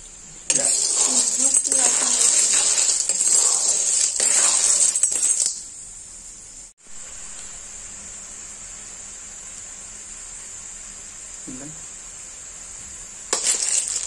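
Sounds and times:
steady high hiss: 0.0s - 14.0s
shells clattering in a metal wok: 0.5s - 5.8s, 13.3s - 14.0s.

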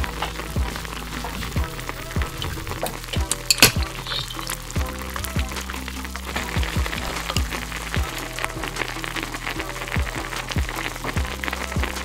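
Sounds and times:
background music with beat: 0.0s - 12.0s
sauce bubbling and crackling: 0.0s - 12.0s
metal tongs clinking: 2.3s - 4.8s.

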